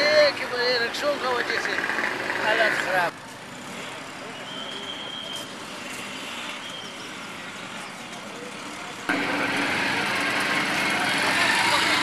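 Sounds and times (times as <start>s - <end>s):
street traffic: 0.0s - 12.0s
engine running close by: 8.4s - 12.0s.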